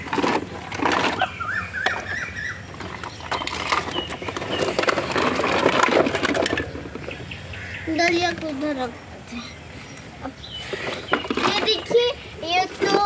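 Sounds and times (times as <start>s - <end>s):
plastic toys clattering: 0.0s - 7.2s, 10.6s - 13.0s.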